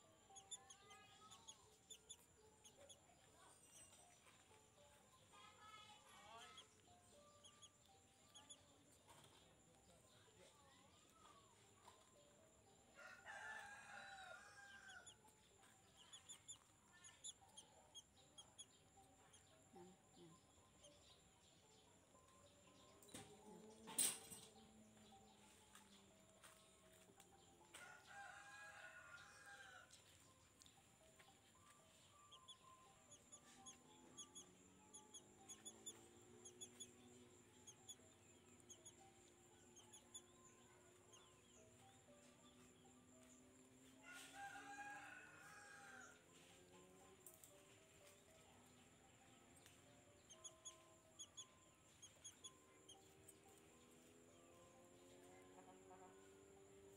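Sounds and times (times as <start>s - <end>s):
small birds chirping: 0.0s - 12.4s, 13.3s - 42.9s, 45.5s - 56.3s.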